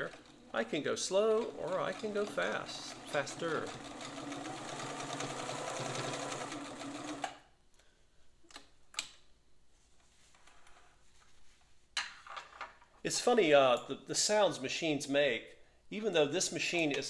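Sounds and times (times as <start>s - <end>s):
sewing machine stitching: 0.0s - 7.4s.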